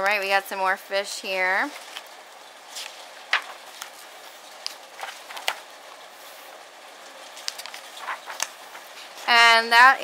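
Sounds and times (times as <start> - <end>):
paper pages turning: 2.7 - 6.5, 7.2 - 9.3
paper rustles and taps: 2.8 - 4.0, 4.6 - 5.7, 7.4 - 9.0.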